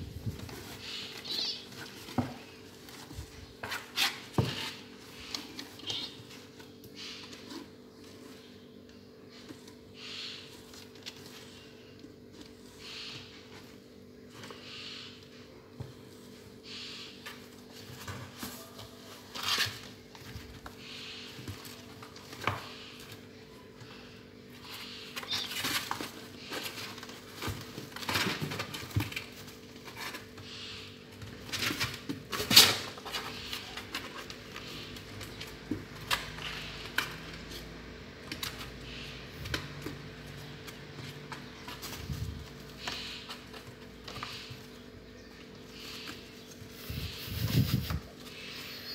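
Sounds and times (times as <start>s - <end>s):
cats scratching cardboard box: 0.0s - 48.9s.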